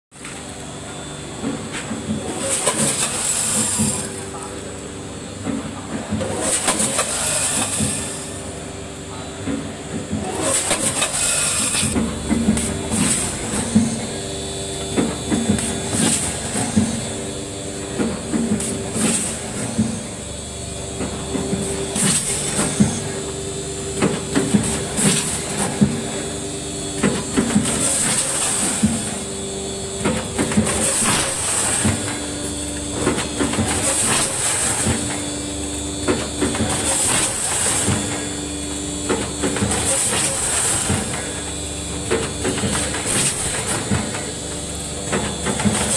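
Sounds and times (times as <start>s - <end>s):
machine hum: 0.2s - 45.9s
packing machine clattering: 20.8s - 45.9s.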